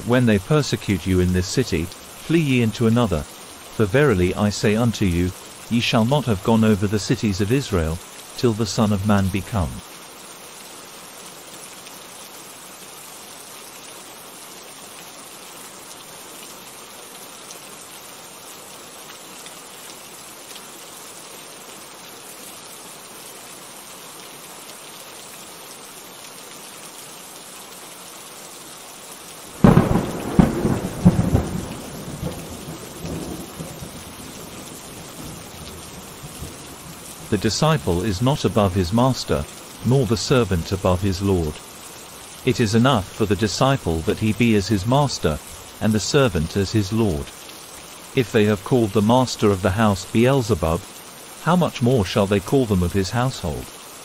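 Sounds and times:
steady rain falling: 0.0 - 54.0
thunder crack rolling: 29.6 - 33.9.

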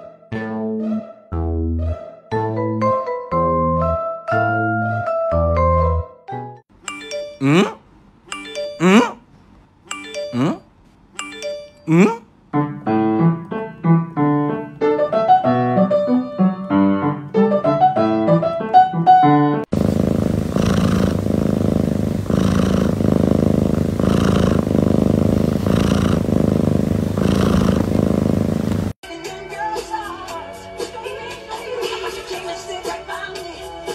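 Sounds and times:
piano playing: 12.6 - 19.7
cat purring: 19.7 - 29.0.

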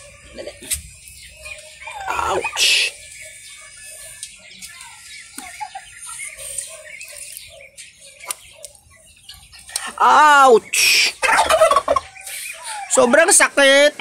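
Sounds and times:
rustling in straw: 0.0 - 8.2.

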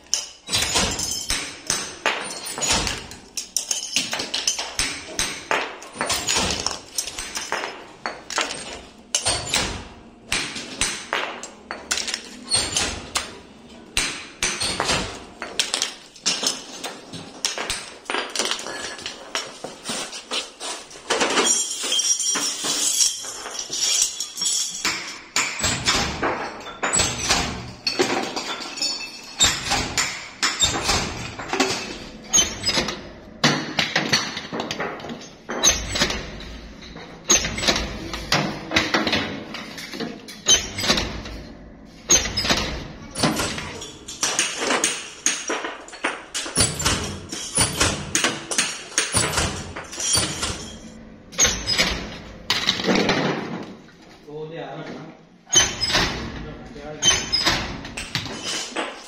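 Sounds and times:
metal canisters clanking: 21.0 - 54.2.

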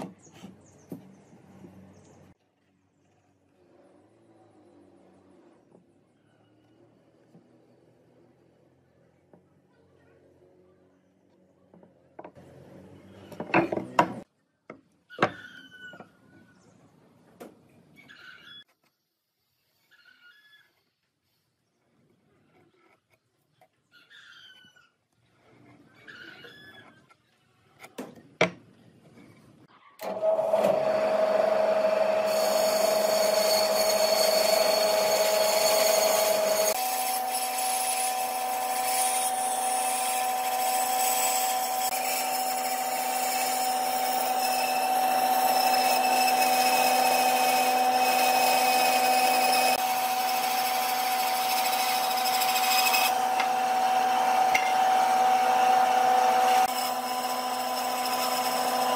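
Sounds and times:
electric power tool humming: 30.0 - 58.9.

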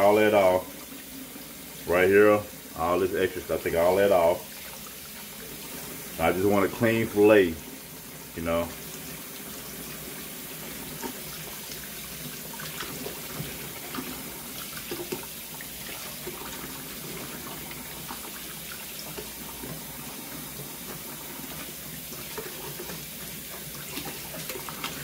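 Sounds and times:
faucet running into water: 0.0 - 25.0
small water splashes: 22.1 - 25.0.

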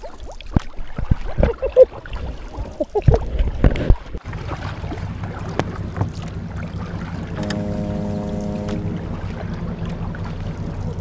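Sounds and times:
underwater bubbling: 0.0 - 11.0
underwater clicks and knocks: 2.8 - 4.2
steady low hum: 4.9 - 11.0.

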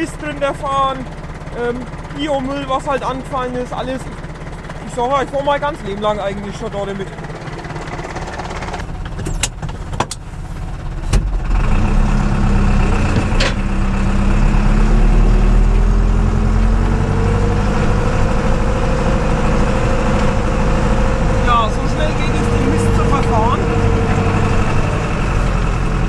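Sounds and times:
tractor diesel engine droning: 0.0 - 26.0
knocks and clicks in tractor cab: 7.1 - 11.5, 13.0 - 13.7.

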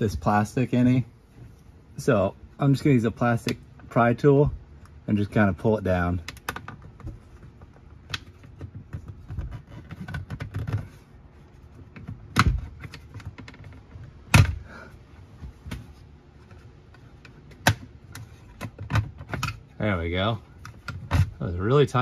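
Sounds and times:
plastic clicks and knocks: 6.2 - 11.0, 15.4 - 19.6.

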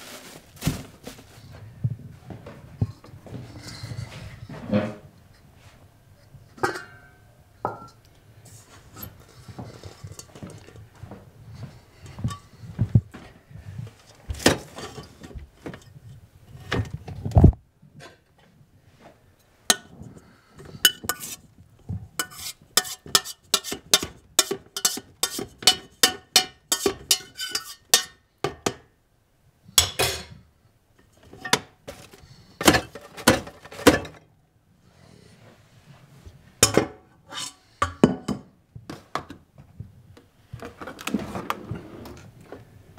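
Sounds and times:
pot and lid clattering: 6.6 - 8.0, 20.6 - 21.4, 22.2 - 28.8, 29.8 - 30.4, 31.1 - 34.2
spoon scraping metal pot: 19.7 - 21.4, 22.2 - 28.2, 37.2 - 37.8.

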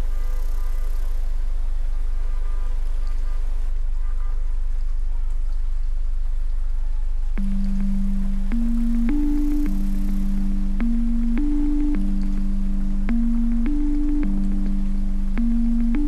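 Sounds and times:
deep bass drone: 7.4 - 16.0
faint held tones: 7.4 - 16.0
keyboard chord: 7.4 - 16.0.

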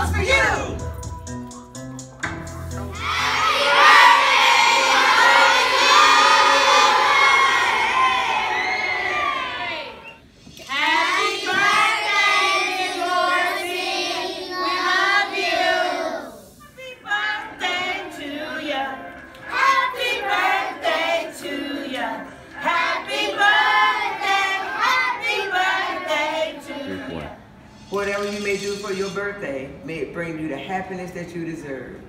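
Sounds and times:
young children singing together: 3.0 - 27.4.

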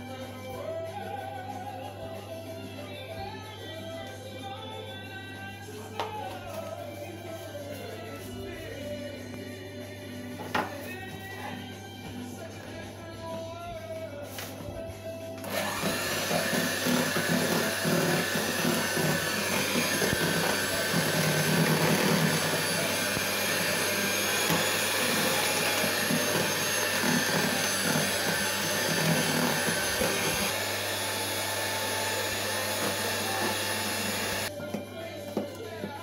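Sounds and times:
electric hand mixer churning batter: 15.4 - 34.5.

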